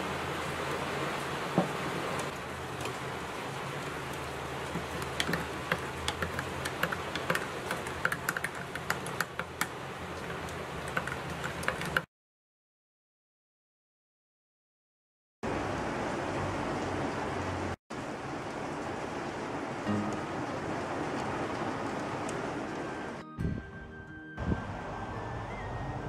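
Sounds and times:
rain hiss: 0.0 - 12.0, 15.5 - 23.2.

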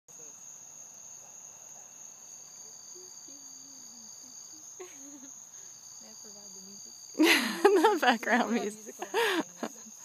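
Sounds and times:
crickets trilling: 0.1 - 10.0
faint voice: 2.6 - 4.6.

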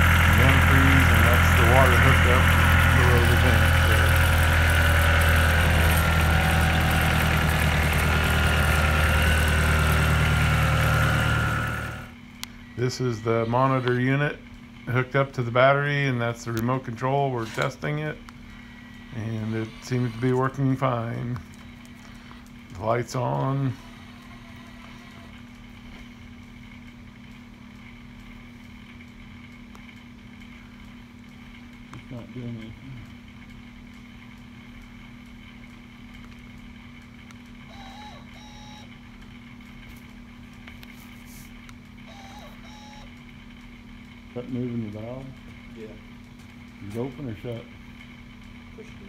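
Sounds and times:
engine idling: 0.0 - 12.2.

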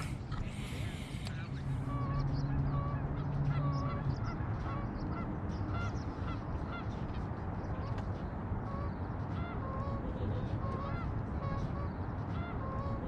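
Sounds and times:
low steady hum: 0.0 - 4.9
geese honking: 0.0 - 7.0, 8.7 - 13.0.

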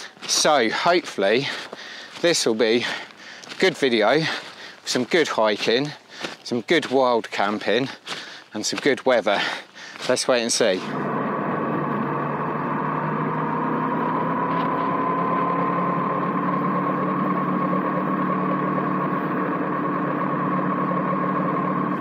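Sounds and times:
wind and road noise: 0.0 - 22.0
motorcycle engine cruising: 10.6 - 22.0.

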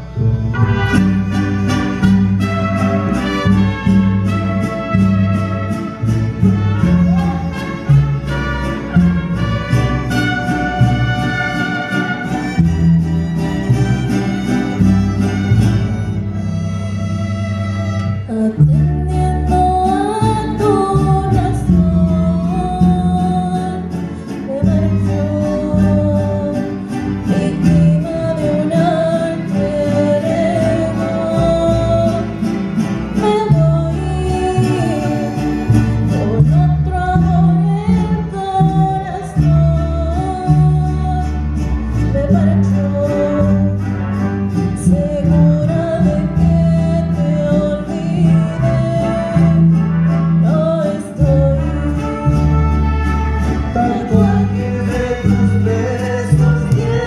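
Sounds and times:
mariachi band playing: 0.0 - 57.0
woman singing: 18.2 - 32.4, 33.1 - 43.8, 44.8 - 49.7, 50.4 - 53.0, 53.6 - 57.0.

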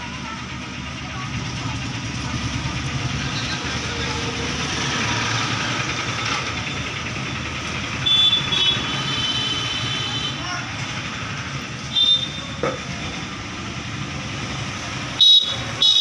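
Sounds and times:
vehicle engine rumble: 0.0 - 16.0.

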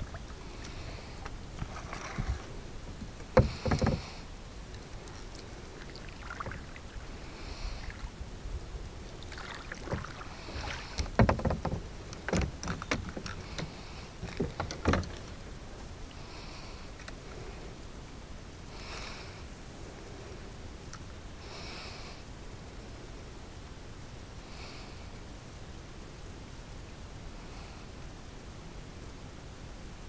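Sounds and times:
open water background: 0.0 - 30.0
knocks on plastic kayak hull: 3.4 - 4.1, 11.1 - 13.2.

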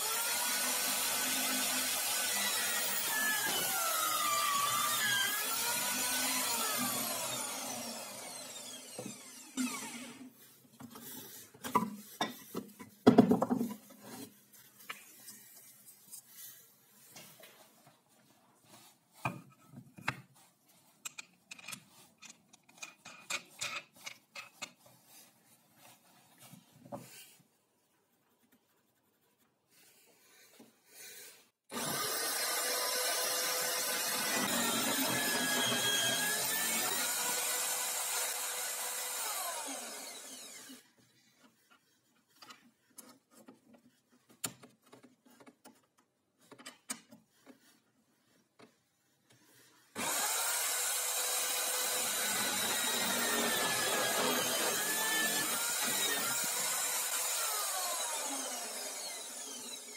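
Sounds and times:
power drill boring into wood: 0.0 - 10.3, 31.7 - 40.9, 50.0 - 59.9.

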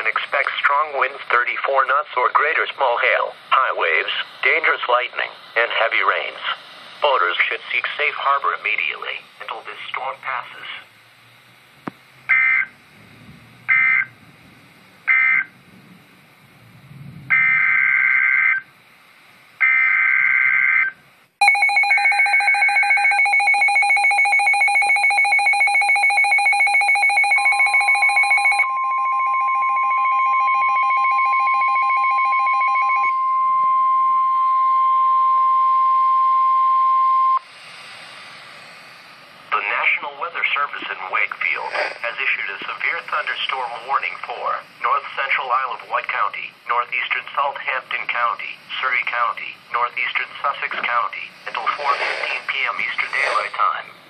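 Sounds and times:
steady warning alarm tone: 0.0 - 13.0, 13.6 - 14.3, 15.0 - 15.7, 16.3 - 19.0, 19.6 - 54.0
screeching data bursts: 12.3 - 12.8, 13.7 - 14.1, 15.0 - 15.6, 17.3 - 18.7, 19.6 - 31.6, 51.1 - 53.9
pulsing alert alarm: 13.7 - 14.1, 17.3 - 18.6, 19.6 - 37.5.

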